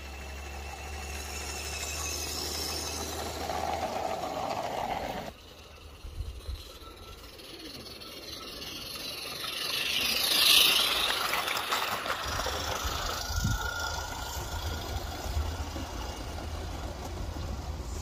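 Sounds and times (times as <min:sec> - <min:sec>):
model train hissing and rattling: 0:00.0 - 0:18.0.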